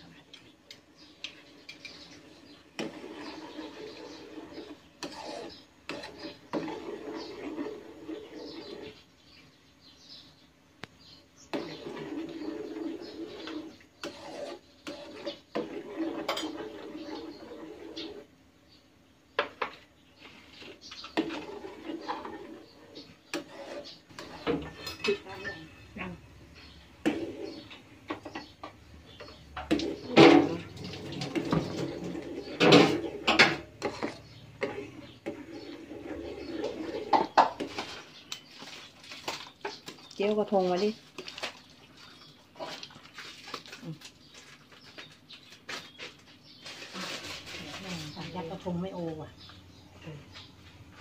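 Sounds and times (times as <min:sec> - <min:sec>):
metal spoon scraping saucepan: 0:02.8 - 0:09.0, 0:11.5 - 0:18.3, 0:20.6 - 0:26.0, 0:26.6 - 0:28.5, 0:29.1 - 0:38.6.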